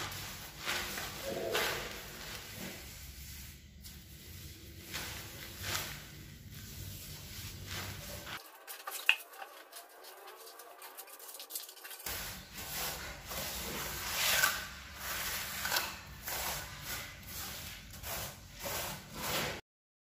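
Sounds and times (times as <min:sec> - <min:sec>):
trowel scraping mortar: 0:07.9 - 0:19.6.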